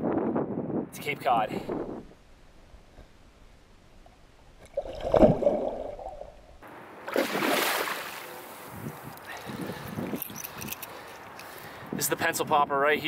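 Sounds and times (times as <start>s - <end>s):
water sloshing and gurgling: 4.6s - 8.6s
fish splashing at surface: 7.1s - 8.3s.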